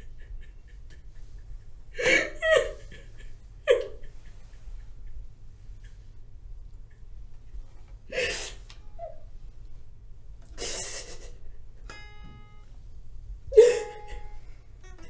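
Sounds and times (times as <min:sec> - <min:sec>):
woman sobbing: 0:00.0 - 0:04.6, 0:10.6 - 0:11.5, 0:13.5 - 0:14.4
plucked string ringing: 0:11.7 - 0:15.0.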